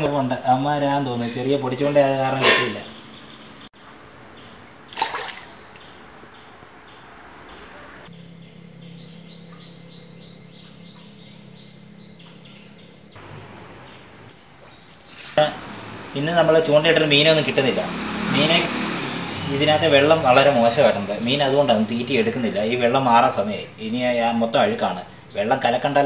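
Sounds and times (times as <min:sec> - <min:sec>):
birds chirping: 0:00.0 - 0:26.0
low steady hum: 0:08.1 - 0:14.6.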